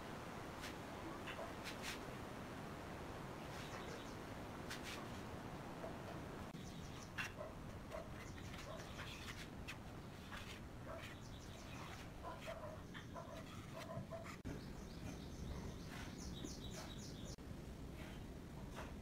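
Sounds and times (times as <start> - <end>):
birds chirping: 3.4 - 4.3, 5.8 - 17.4.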